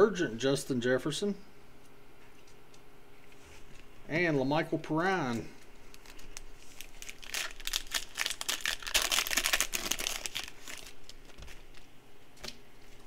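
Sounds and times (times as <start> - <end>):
foil wrapper crinkling and tearing: 5.9 - 11.9.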